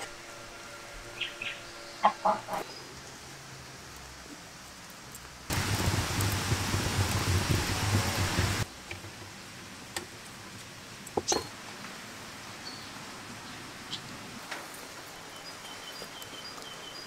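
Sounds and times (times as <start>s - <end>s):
wood fire rushing hiss: 2.9s - 13.2s.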